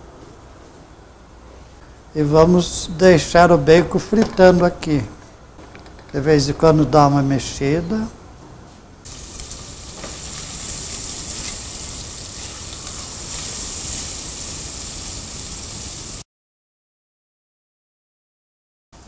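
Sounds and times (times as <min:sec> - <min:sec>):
bacon sizzling in oil: 0:09.1 - 0:16.2.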